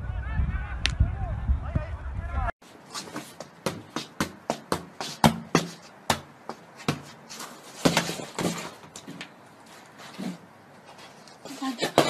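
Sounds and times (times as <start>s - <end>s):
football thudding on foot: 3.0s - 7.2s, 7.8s - 9.0s.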